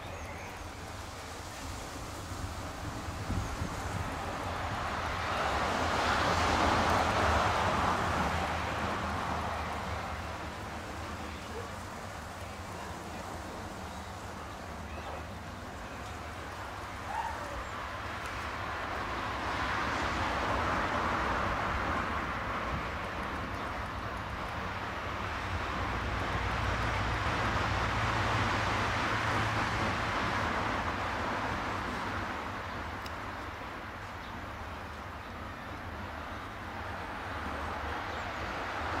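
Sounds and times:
outdoor background rush: 0.0s - 39.0s.

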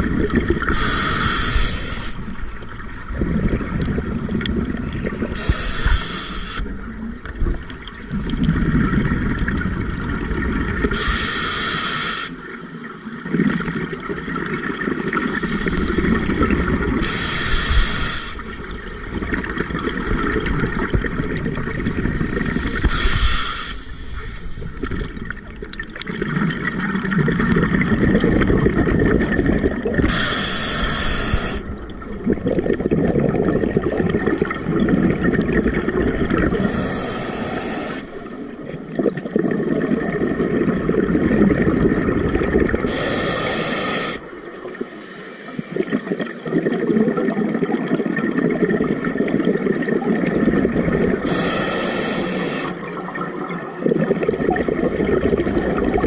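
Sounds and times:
exhaled air bubbling: 0.0s - 56.0s
regulator inhalation hiss: 0.7s - 2.3s, 5.4s - 6.8s, 11.0s - 12.4s, 15.2s - 16.3s, 17.0s - 18.6s, 22.4s - 24.9s, 30.1s - 31.7s, 36.5s - 38.2s, 42.9s - 44.4s, 45.0s - 46.2s, 51.0s - 52.8s.

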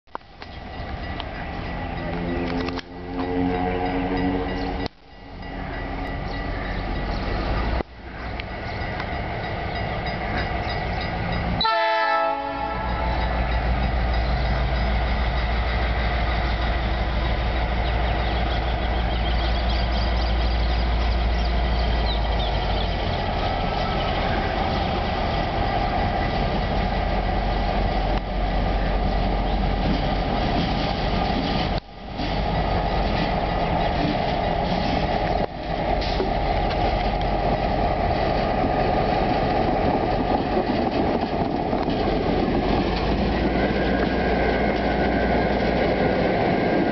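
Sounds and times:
diesel locomotive engine drone: 0.1s - 46.9s
train horn: 2.1s - 4.9s, 11.6s - 13.3s.

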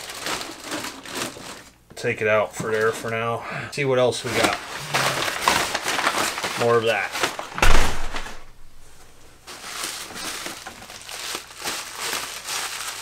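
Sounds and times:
packing paper crumpling: 0.0s - 1.8s, 4.2s - 13.0s
cardboard box thump: 7.5s - 8.5s.

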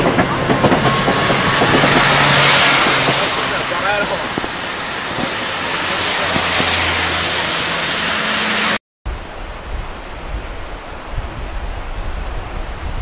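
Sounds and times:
steady rushing with low rumble: 0.0s - 7.1s
heavy rain: 0.0s - 13.0s
tyres hissing on wet road: 2.0s - 8.8s.

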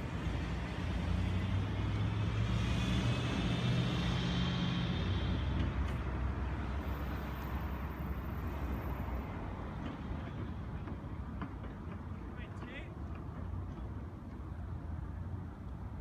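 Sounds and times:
vehicle engine driving past: 0.7s - 5.9s.

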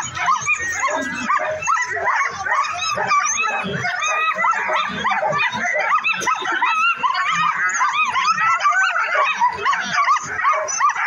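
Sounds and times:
sled dogs barking and yipping: 0.0s - 11.0s.

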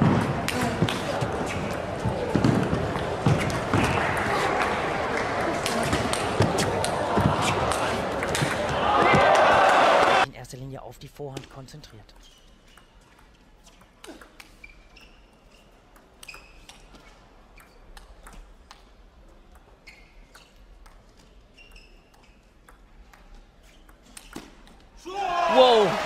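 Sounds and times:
table tennis ball rally: 0.0s - 10.3s, 20.4s - 26.0s.

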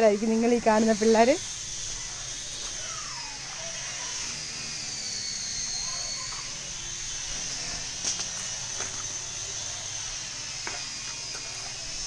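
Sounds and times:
insects droning high-pitched: 0.0s - 12.0s.

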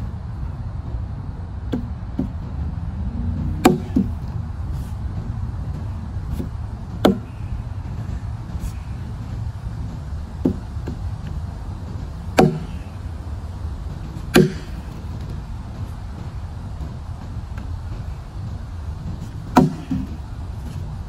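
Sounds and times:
axe chopping log: 3.5s - 4.3s, 6.3s - 7.4s, 10.4s - 11.0s, 12.3s - 13.0s, 14.2s - 15.2s, 19.5s - 20.2s.

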